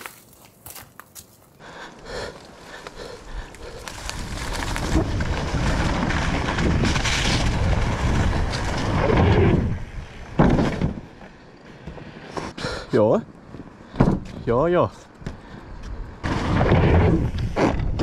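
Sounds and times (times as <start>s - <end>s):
bicycle tyres rolling on dirt: 0.0s - 18.0s
wind on microphone: 3.3s - 11.0s, 15.8s - 18.0s.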